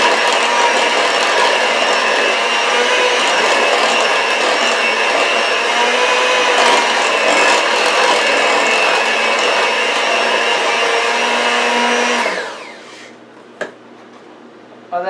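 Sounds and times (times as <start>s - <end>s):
beaters mixing thick batter: 0.0s - 13.1s
electric hand mixer running: 0.0s - 13.2s.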